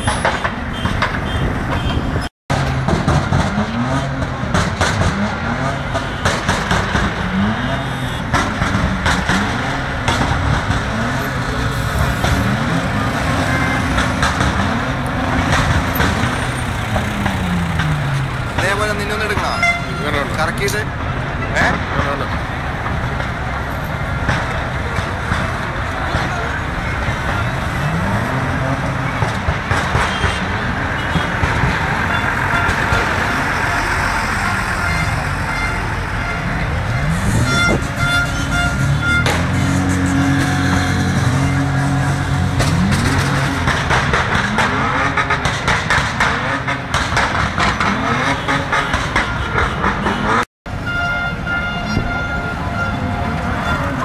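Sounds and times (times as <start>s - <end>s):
traffic driving past: 0.0s - 54.0s
engine revving: 2.5s - 19.5s, 24.0s - 50.5s.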